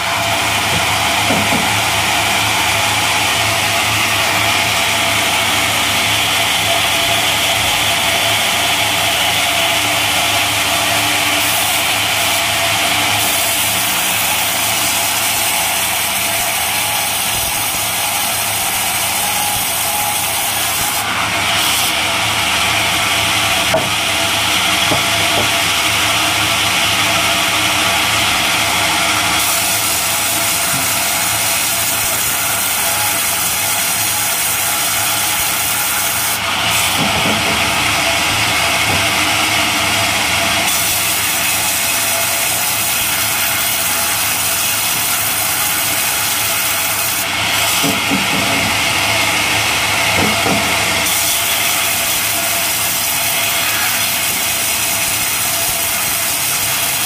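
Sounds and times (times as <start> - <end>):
band saw ripping wood: 29.3 - 39.5, 50.0 - 57.0.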